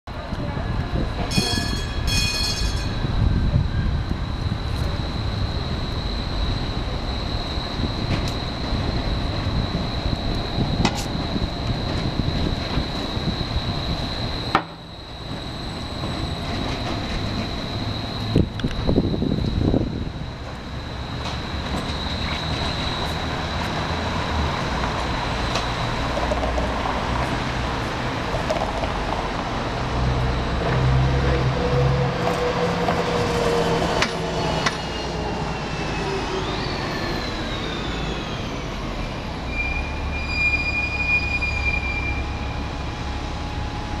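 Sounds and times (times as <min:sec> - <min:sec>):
streetcar running on rails: 0:00.1 - 0:44.0
high steady squeal: 0:01.0 - 0:28.1, 0:29.8 - 0:44.0
high steady tone: 0:01.3 - 0:10.6
bus engine passing: 0:03.4 - 0:40.1
falling whines: 0:31.3 - 0:44.0.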